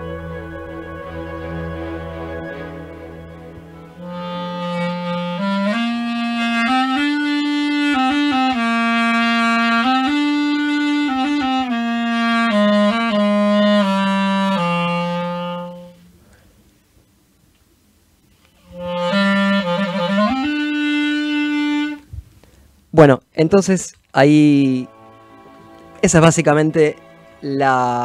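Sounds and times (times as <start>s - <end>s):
solo clarinet slow melody: 0.0s - 16.2s, 18.6s - 22.1s, 24.6s - 26.3s.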